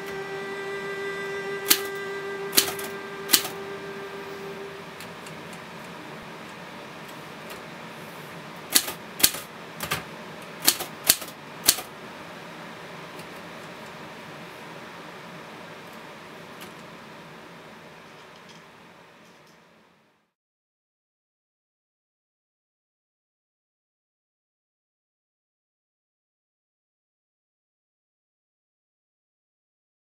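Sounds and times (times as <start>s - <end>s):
held musical note: 0.0s - 6.2s
steady low hiss: 0.0s - 20.4s
typewriter keys clacking: 2.5s - 3.5s.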